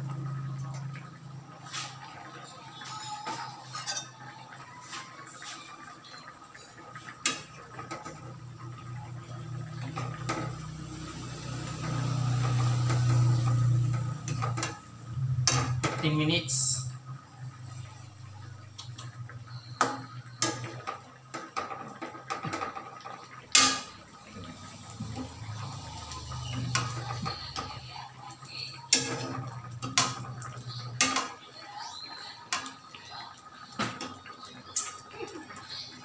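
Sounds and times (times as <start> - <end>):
ladle pouring liquid: 17.3 - 35.8.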